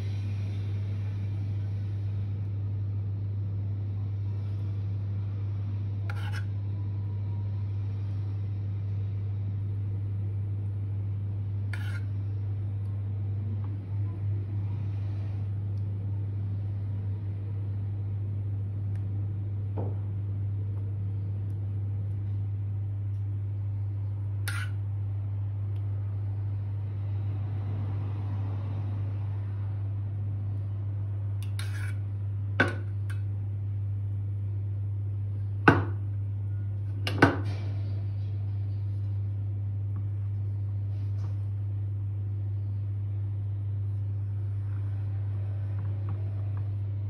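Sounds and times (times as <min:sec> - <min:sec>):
low hum: 0:00.0 - 0:47.0
metal spoon spreading pudding: 0:06.0 - 0:06.7, 0:11.7 - 0:12.4, 0:24.5 - 0:24.8, 0:31.4 - 0:32.1.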